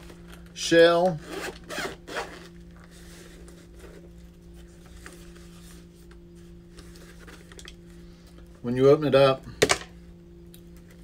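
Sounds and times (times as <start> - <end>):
steady low hum: 0.0 - 11.0
zipper being pulled open: 1.2 - 2.5
faint handling sounds: 2.4 - 8.6.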